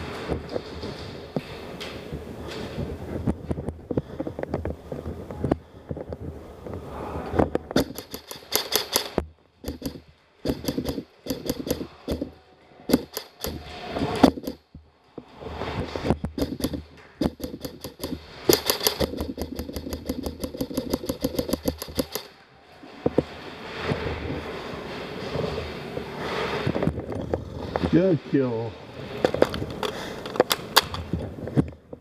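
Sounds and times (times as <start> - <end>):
airsoft guns firing: 7.8 - 12.3, 12.9 - 14.6, 16.4 - 22.4.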